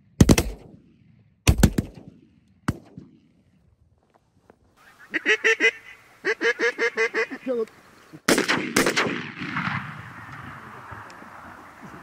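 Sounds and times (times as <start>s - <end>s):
shotgun shots with echo: 0.2s - 3.2s, 8.3s - 10.3s
geese honking: 4.8s - 8.2s.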